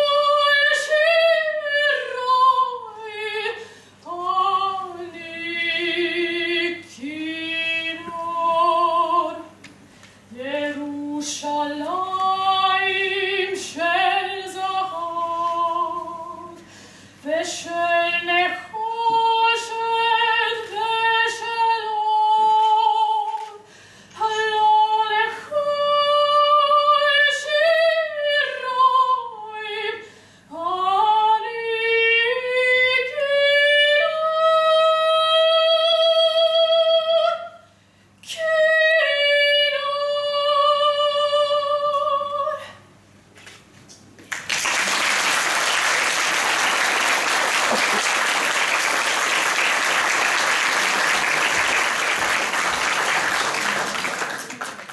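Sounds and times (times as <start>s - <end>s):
audience applauding: 44.3s - 54.9s.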